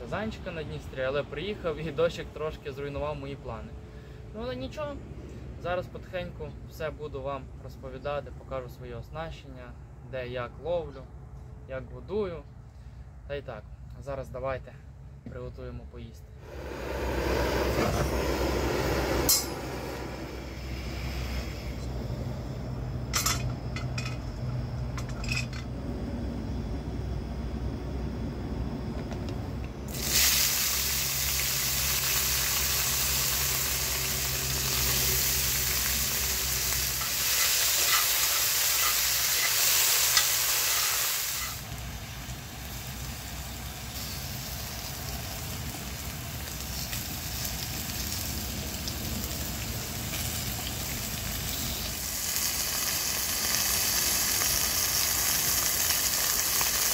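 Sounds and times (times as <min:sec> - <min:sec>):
low hum: 0:16.3 - 0:30.0
food sizzling in a pan: 0:16.4 - 0:21.8, 0:29.9 - 0:56.9
clinks: 0:19.3 - 0:19.7, 0:24.9 - 0:25.7.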